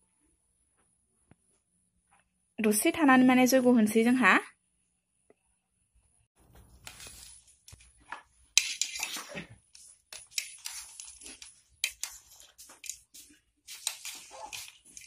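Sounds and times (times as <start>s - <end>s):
paper and plastic rustling: 6.4s - 15.0s
wooden sticks clinking: 6.9s - 15.0s.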